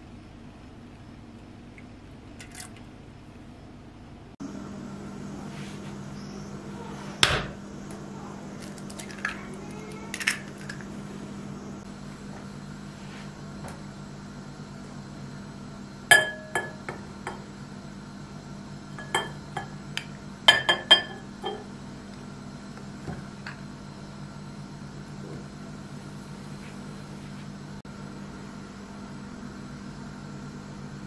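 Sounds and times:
steady low hum: 0:00.0 - 0:31.0
egg cracking: 0:08.6 - 0:11.0.

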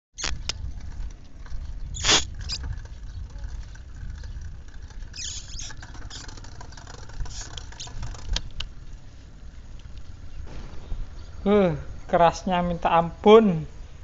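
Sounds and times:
low rumble: 0:06.6 - 0:14.0.

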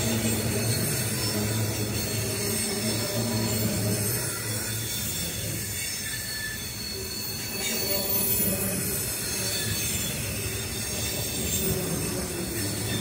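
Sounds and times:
freight train cars rolling: 0:00.0 - 0:13.0
high wheel squeal: 0:00.0 - 0:13.0.

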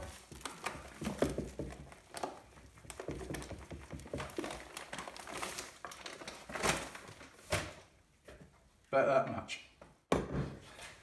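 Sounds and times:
paper bag crinkling: 0:04.0 - 0:07.7.

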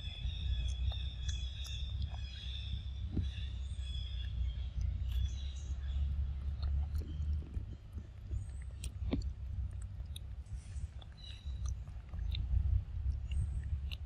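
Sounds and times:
monkeys chewing fruit: 0:00.0 - 0:14.0
steady low rumble: 0:00.0 - 0:14.0
wet smacks and small clicks: 0:06.4 - 0:10.4, 0:11.0 - 0:14.0.

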